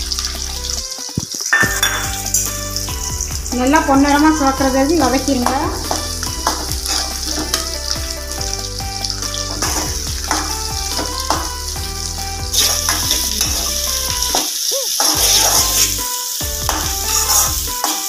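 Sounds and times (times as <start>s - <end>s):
shallots sizzling in hot oil: 0.0s - 18.0s
spatula stirring and scraping: 4.6s - 14.4s, 15.0s - 18.0s.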